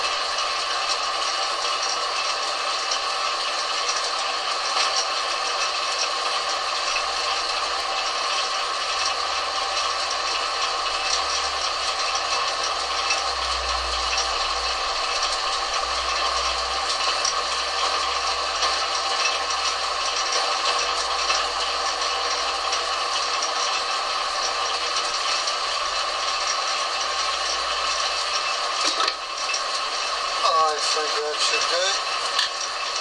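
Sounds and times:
metal lathe rattle and whine: 0.0s - 33.0s.

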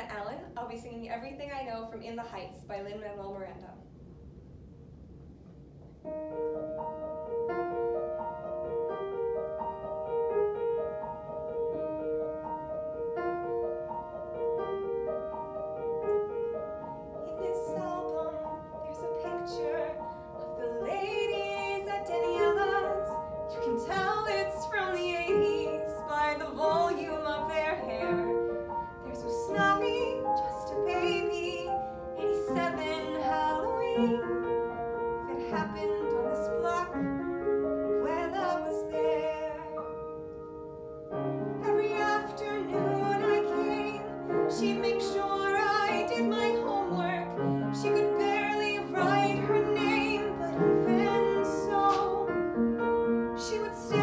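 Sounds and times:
upright piano playing: 6.0s - 54.0s
woman singing with vibrato: 17.2s - 34.4s, 35.3s - 37.1s, 38.0s - 39.8s, 41.6s - 52.4s, 53.4s - 54.0s.

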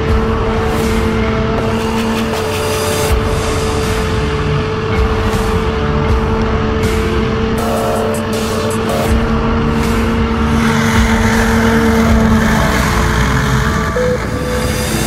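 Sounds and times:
hovercraft engine hum: 2.6s - 15.0s
rushing noise: 7.6s - 15.0s.

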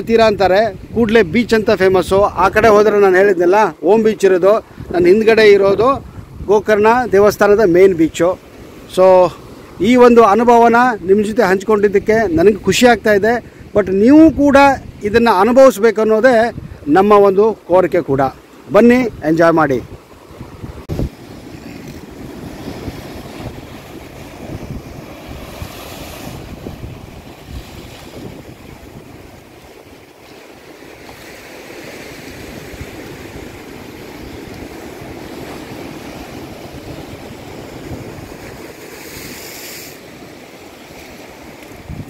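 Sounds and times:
wind buffeting microphone: 4.6s - 7.7s, 16.4s - 17.2s, 19.0s - 42.0s
surf breaking over rocks: 18.2s - 42.0s.

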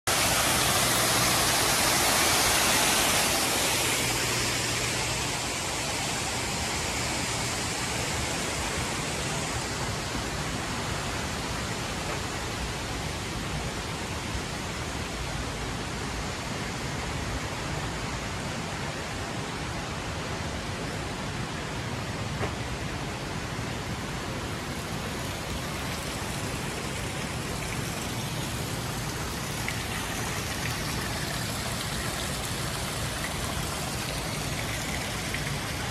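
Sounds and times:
waterfall splashing into pool: 0.0s - 15.0s, 24.3s - 35.9s.

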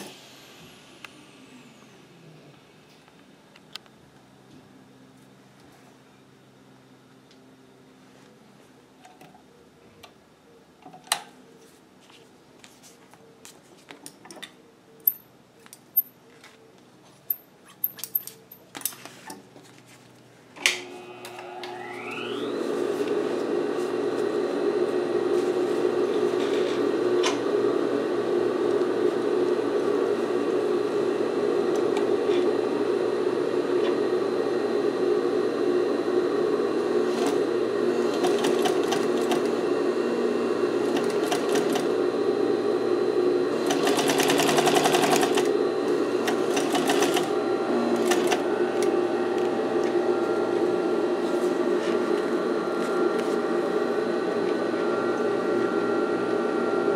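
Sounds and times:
sewing machine motor humming: 20.7s - 50.8s.

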